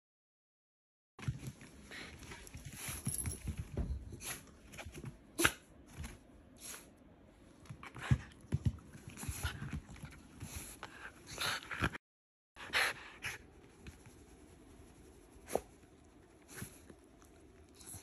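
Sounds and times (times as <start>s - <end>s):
paws shuffling on floor: 1.2s - 6.8s.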